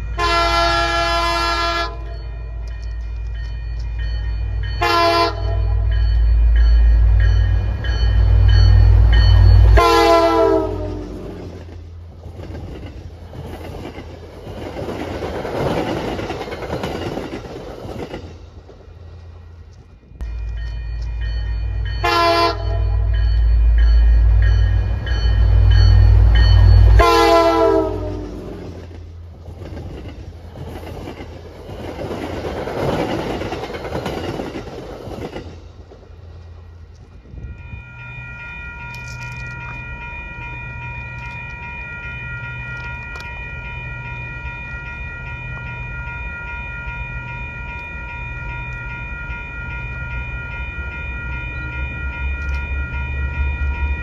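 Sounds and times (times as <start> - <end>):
train cars rolling by: 0.0 - 54.0
locomotive horn: 0.2 - 2.2, 4.8 - 5.7, 9.7 - 11.4, 22.0 - 23.1, 27.0 - 28.6.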